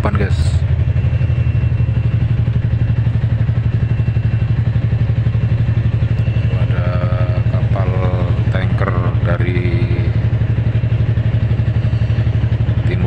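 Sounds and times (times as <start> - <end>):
boat engine running steadily: 0.0 - 13.0.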